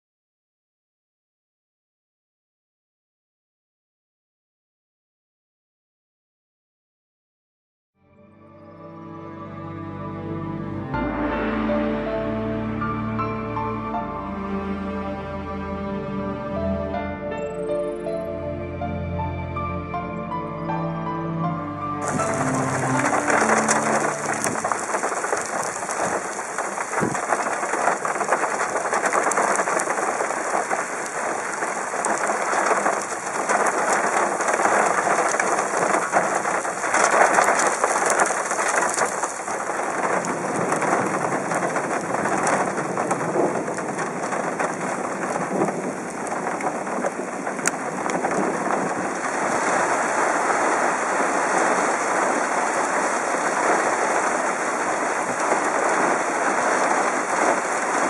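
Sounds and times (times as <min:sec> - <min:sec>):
rain and wind hiss: 0:22.0 - 0:58.0.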